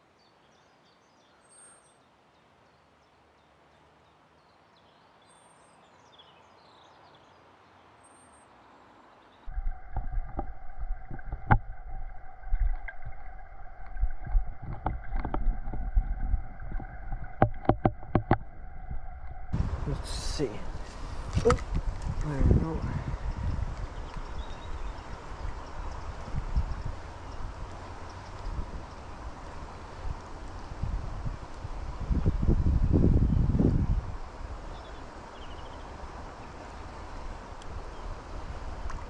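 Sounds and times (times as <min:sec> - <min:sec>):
sharp underwater clicks and knocks: 0:09.5 - 0:19.4
deep rumble of underwater flow: 0:09.5 - 0:39.0.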